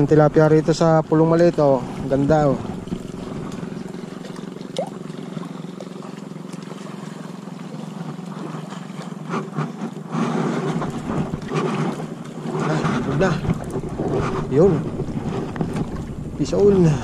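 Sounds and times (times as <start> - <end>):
motorboat engine drone: 0.0 - 17.0
water splashing: 0.0 - 17.0
handling noise: 10.6 - 17.0.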